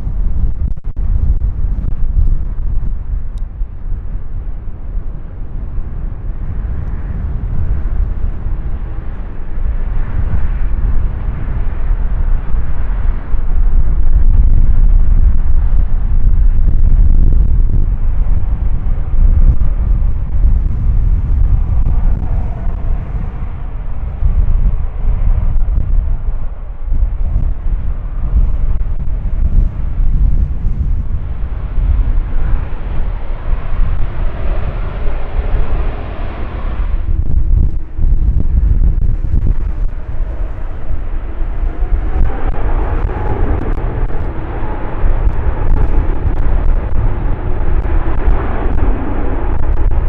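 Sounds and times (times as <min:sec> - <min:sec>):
jet engines rumbling: 0:00.0 - 0:50.0.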